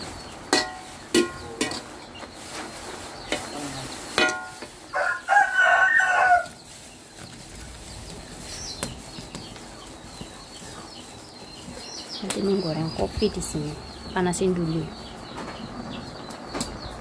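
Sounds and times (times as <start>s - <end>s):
rooster crowing: 4.9s - 6.6s.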